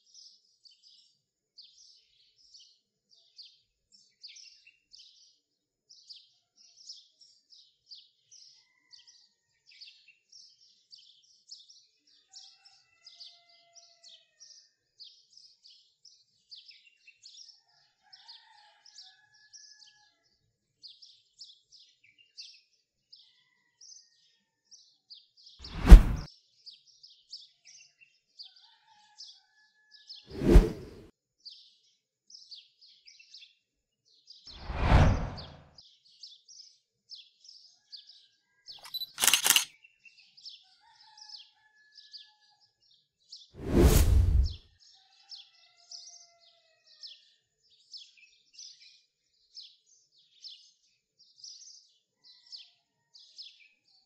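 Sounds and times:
whoosh sound effect: 25.6 - 26.3, 30.3 - 31.0, 34.6 - 35.6, 43.6 - 44.6.

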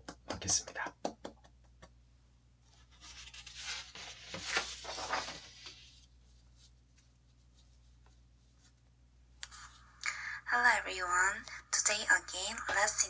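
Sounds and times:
soft hissing and rustling: 2.6 - 10.0.

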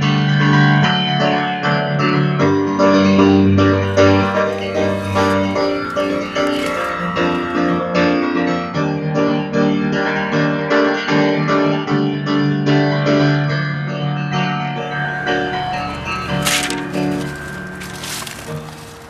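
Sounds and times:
piano music: 14.7 - 19.0.

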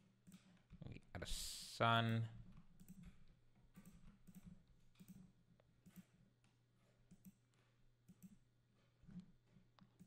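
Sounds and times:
mouse and keyboard clicks: 2.5 - 8.5.

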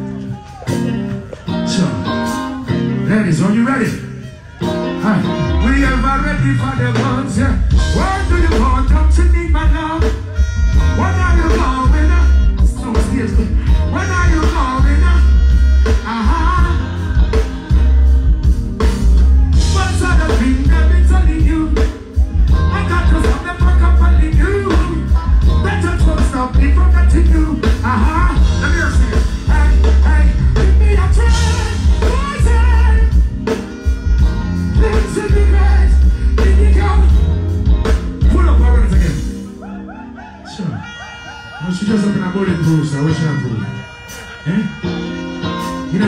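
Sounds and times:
live reggae band: 0.0 - 46.0
person singing: 4.3 - 33.3.

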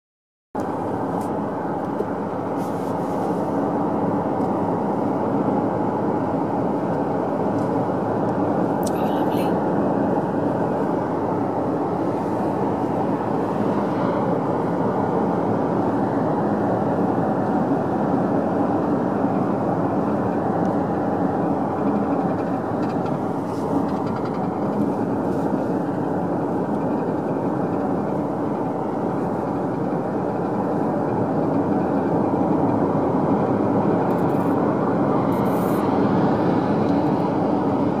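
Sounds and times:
engine and wind hum: 0.6 - 38.0
tyres rolling on asphalt: 9.7 - 38.0.

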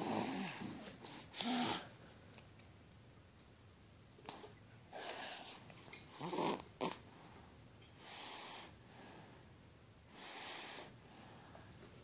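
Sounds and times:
child snoring: 0.0 - 1.9, 6.1 - 7.0
soft airy breaths: 0.0 - 2.4, 4.2 - 12.0.

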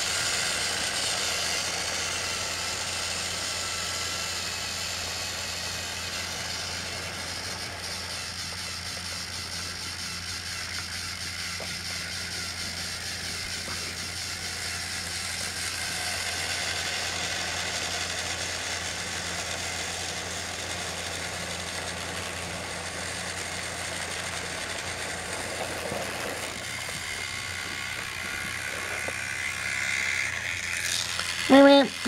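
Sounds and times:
toy train motors whirring: 0.0 - 32.0.

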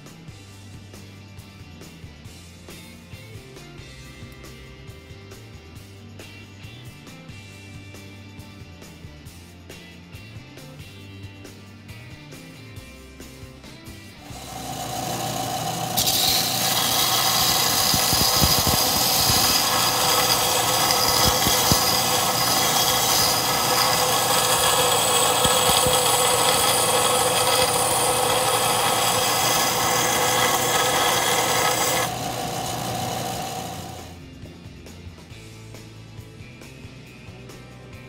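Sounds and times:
belt sander motor running: 14.2 - 34.2
metal grinding on sanding belt: 14.2 - 34.2.

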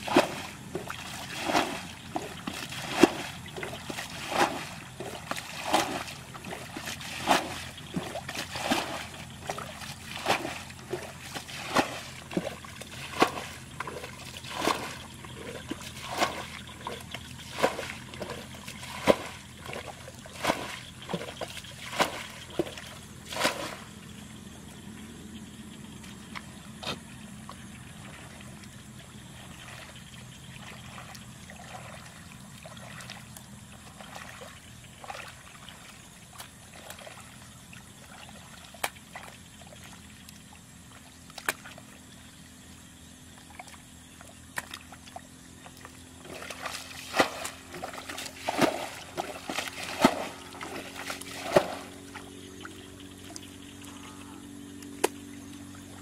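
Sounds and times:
water trickling and sloshing: 0.0 - 56.0
water thrown out in splashes: 46.2 - 52.2.

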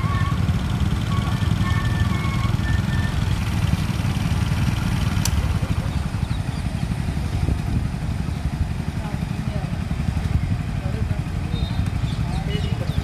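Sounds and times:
low machine engine rumble: 0.0 - 13.0
motorcycles idling: 0.0 - 13.0.

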